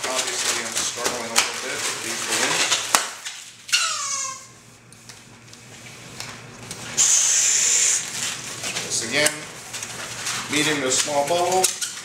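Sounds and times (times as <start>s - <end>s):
balloon squeak: 3.7s - 4.5s
air hissing from balloon: 6.9s - 8.2s.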